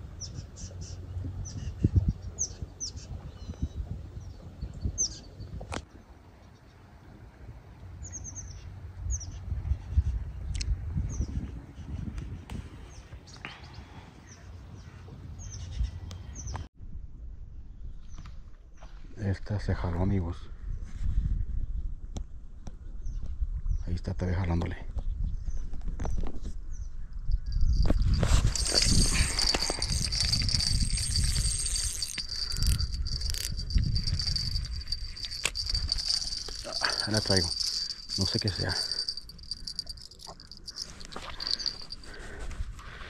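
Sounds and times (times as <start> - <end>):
insects chirring: 27.4 - 42.2.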